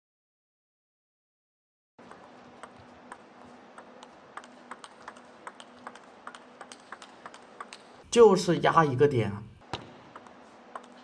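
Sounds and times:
table tennis ball clicks: 2.0s - 8.0s, 9.6s - 11.0s
faint hall hum: 2.0s - 11.0s.

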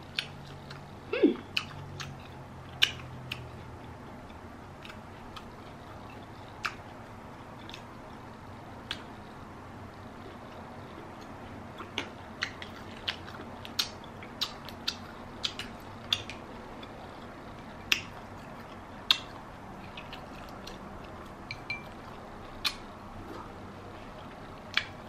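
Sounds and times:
wet eating clicks and smacks: 1.5s - 7.0s, 8.8s - 9.1s, 10.9s - 22.9s, 24.2s - 25.0s.

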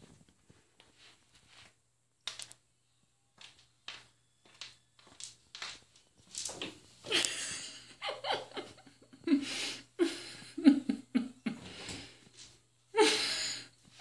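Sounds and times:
person stifling laughter: 7.1s - 11.7s.

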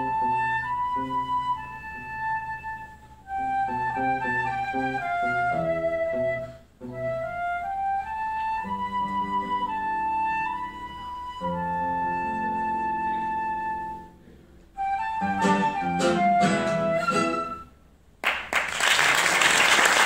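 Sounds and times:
flute: 0.0s - 17.9s
audience applauding: 18.2s - 20.0s.

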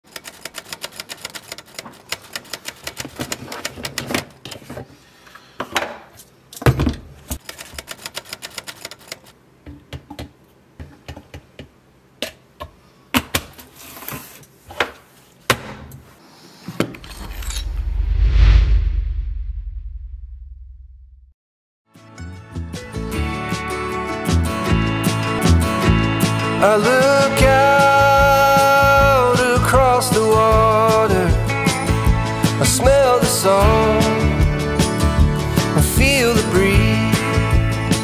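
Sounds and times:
typewriter keys clacking: 0.1s - 4.1s, 7.4s - 9.3s
deep rumble: 17.0s - 21.3s.

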